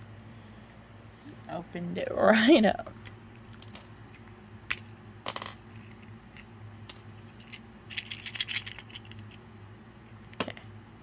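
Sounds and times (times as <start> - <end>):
plastic toy pieces clicking: 3.0 - 9.4.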